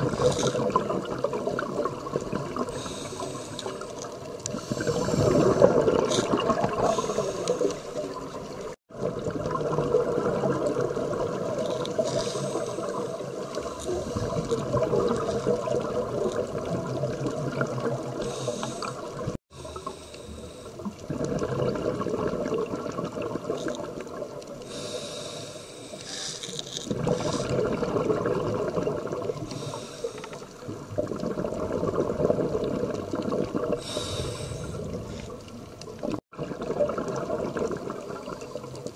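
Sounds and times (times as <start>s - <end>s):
regulator inhalation hiss: 2.8s - 3.9s, 6.8s - 8.0s, 12.0s - 13.0s, 18.2s - 20.8s, 24.7s - 27.5s, 29.5s - 30.5s, 33.8s - 34.9s
bubbling exhalation: 4.5s - 8.2s, 21.0s - 23.7s, 26.9s - 29.6s, 31.0s - 35.1s.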